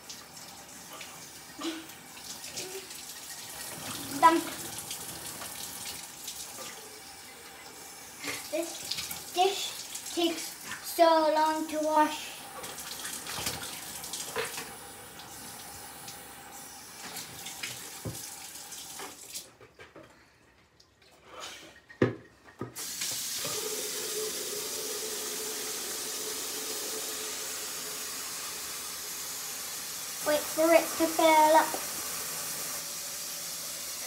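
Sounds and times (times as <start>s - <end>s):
water splashing into a sink: 0.0s - 19.6s, 22.0s - 34.0s
tap running into a bucket: 12.5s - 16.2s, 17.0s - 20.1s, 21.9s - 28.3s.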